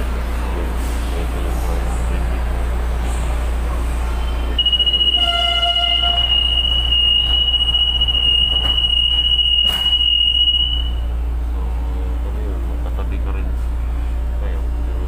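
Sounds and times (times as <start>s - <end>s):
high electronic warning tone: 4.5s - 11.1s.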